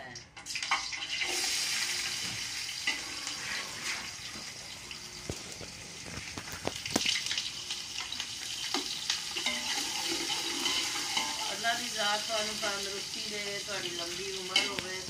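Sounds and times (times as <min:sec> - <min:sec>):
onions sizzling in hot oil: 0:00.5 - 0:15.0
metal spoon scraping a pot: 0:09.4 - 0:11.6.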